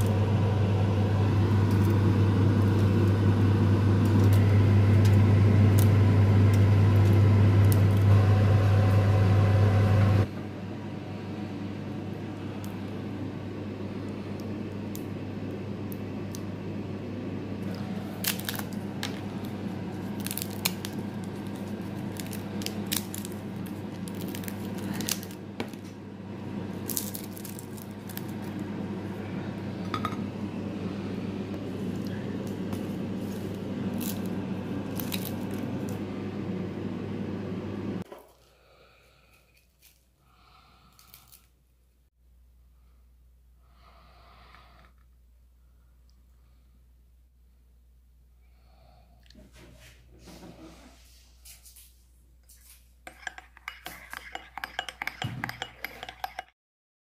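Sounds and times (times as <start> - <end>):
low hum: 0.0 - 38.0
chestnut shells cracking: 17.6 - 19.4, 20.1 - 25.8, 26.8 - 28.5, 33.9 - 34.3, 34.9 - 36.0.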